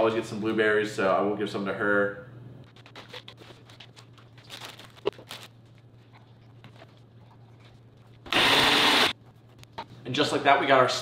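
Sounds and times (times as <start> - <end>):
blender running: 8.3 - 9.1.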